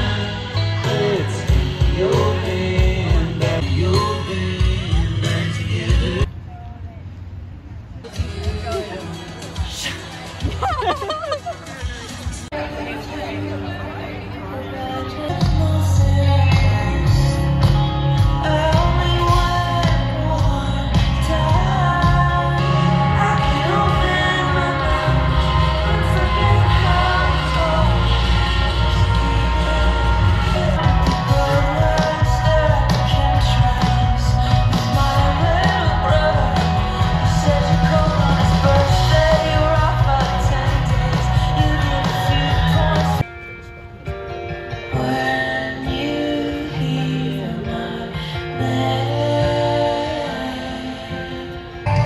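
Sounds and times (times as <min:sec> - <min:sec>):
heavy bass: 0:00.0 - 0:06.3, 0:08.0 - 0:13.0, 0:15.2 - 0:43.2
live band playing amplified music: 0:00.0 - 0:06.3, 0:08.0 - 0:52.0
person singing: 0:00.0 - 0:06.3, 0:12.5 - 0:43.3, 0:44.8 - 0:52.0
steady drum beat: 0:17.6 - 0:43.2.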